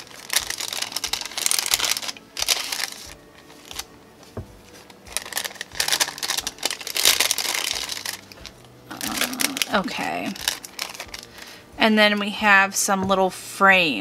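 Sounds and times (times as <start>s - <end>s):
paper envelope rustling: 0.0s - 3.9s, 4.7s - 11.6s.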